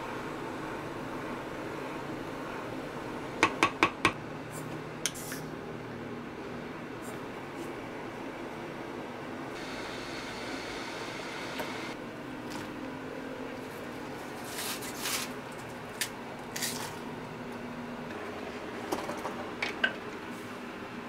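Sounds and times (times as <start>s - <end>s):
wooden spoon tapping pot: 3.4s - 4.2s.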